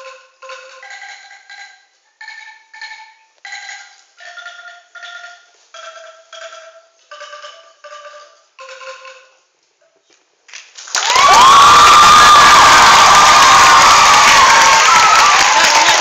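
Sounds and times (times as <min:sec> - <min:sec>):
bamboo angklung melody: 0:00.0 - 0:09.5.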